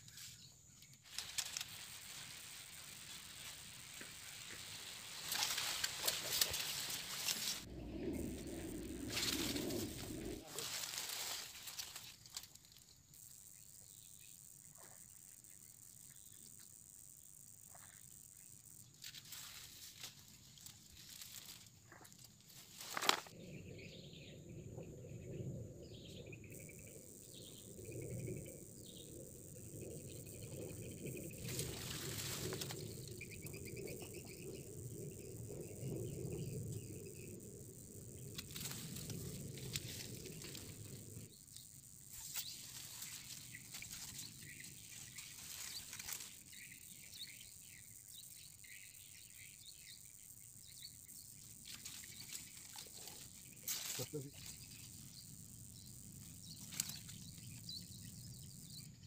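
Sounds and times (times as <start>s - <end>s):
high-pitched insect drone: 0.0s - 59.0s
reeds rustling: 1.0s - 13.3s, 19.0s - 23.4s, 30.7s - 33.8s, 38.1s - 47.3s, 51.4s - 55.4s, 56.1s - 57.7s
steady low rumble: 1.8s - 11.4s, 23.4s - 41.4s.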